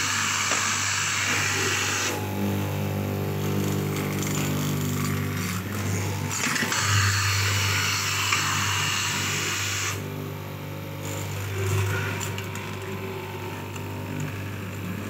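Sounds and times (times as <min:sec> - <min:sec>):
cutting machine motor hum: 0:00.0 - 0:15.0.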